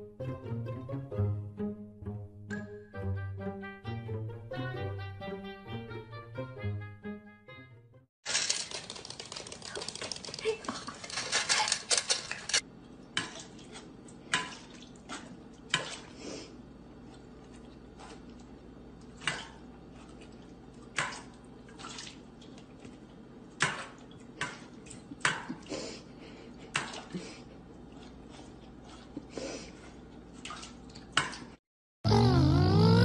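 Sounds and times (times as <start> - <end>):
dog eating from metal bowl: 8.3 - 12.6.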